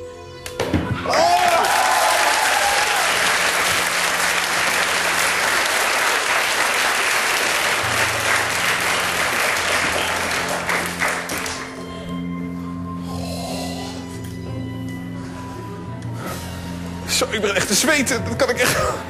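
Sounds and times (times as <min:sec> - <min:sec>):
soft music: 0:00.0 - 0:19.0
studio audience applauding: 0:01.1 - 0:11.9.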